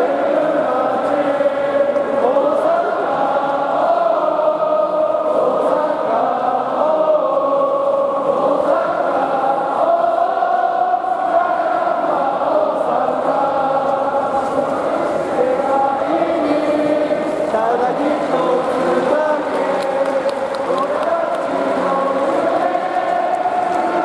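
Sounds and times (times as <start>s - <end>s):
football crowd singing a chant: 0.0s - 24.0s.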